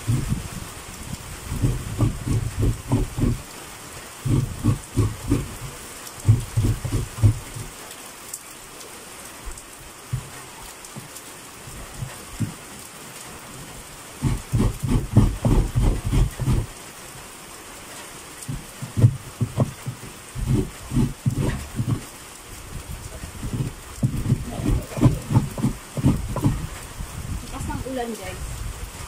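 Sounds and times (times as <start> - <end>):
steady rain hissing: 0.0 - 29.0
coconut scraped on grater blade: 1.5 - 3.4, 4.3 - 5.7, 6.3 - 7.4, 14.2 - 16.7, 20.4 - 22.0, 23.4 - 26.7.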